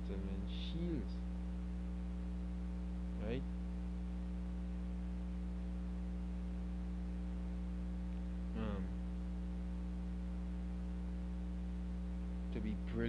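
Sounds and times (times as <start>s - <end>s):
electrical mains hum: 0.0s - 13.0s
brief vocal sound: 8.6s - 8.9s.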